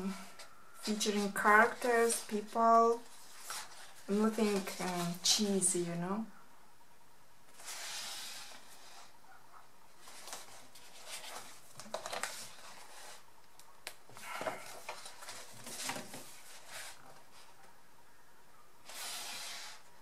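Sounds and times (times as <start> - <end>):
paper pages turning: 1.0 - 5.3, 10.0 - 13.2.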